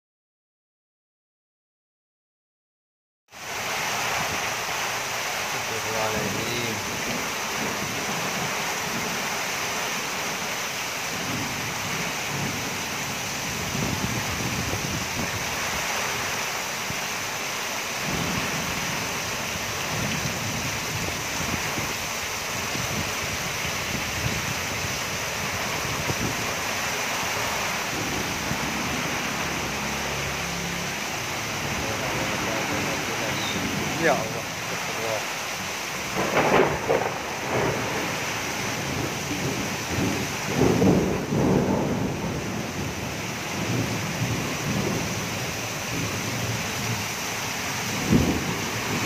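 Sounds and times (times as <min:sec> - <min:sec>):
heavy rain pouring: 0:03.3 - 0:49.0
wind buffeting microphone: 0:13.4 - 0:15.8, 0:18.0 - 0:26.7.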